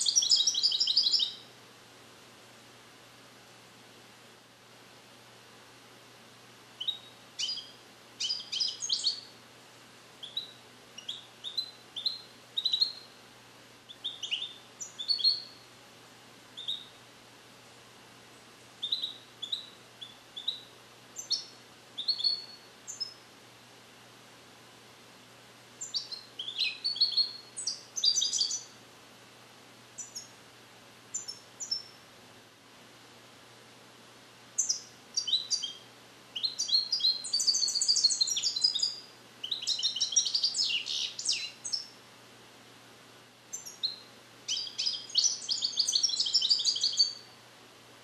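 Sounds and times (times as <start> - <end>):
goldfinch twittering trills: 0.0 - 1.4, 6.8 - 9.2, 14.0 - 15.6, 25.8 - 28.6, 34.6 - 35.8, 36.4 - 41.9, 43.5 - 47.2.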